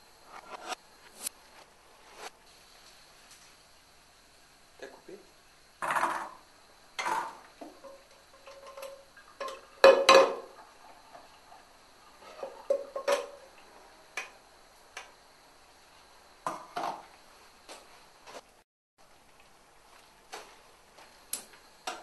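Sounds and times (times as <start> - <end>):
kitchenware clanking and scraping: 7.0 - 10.6, 12.2 - 13.5.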